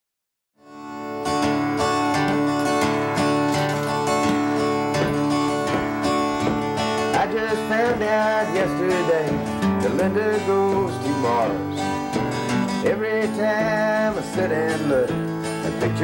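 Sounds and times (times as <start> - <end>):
acoustic guitars playing country: 0.6 - 16.0.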